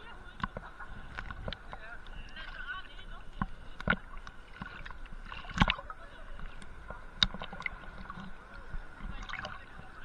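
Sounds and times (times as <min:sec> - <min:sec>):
water sloshing and gurgling: 0:00.0 - 0:10.0
sharp clicks and knocks: 0:06.6 - 0:08.3.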